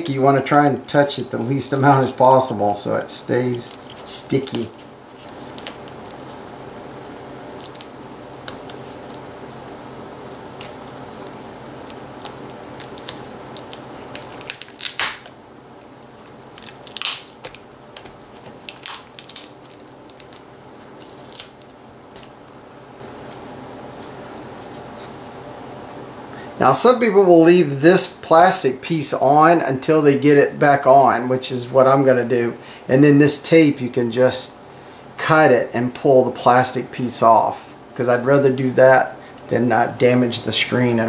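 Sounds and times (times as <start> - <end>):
steady low hum: 0.0 - 41.0
tape and plastic crinkling: 2.9 - 6.4, 7.0 - 9.8, 10.5 - 22.4.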